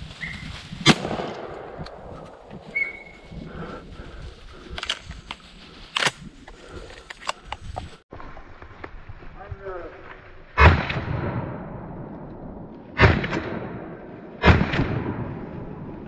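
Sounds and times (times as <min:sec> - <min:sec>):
shotgun blast: 0:13.0 - 0:15.3.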